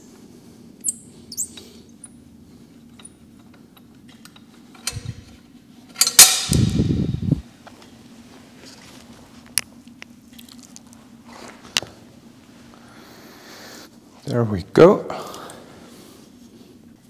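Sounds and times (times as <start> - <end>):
metal squeaks and clicks: 0.8 - 1.6.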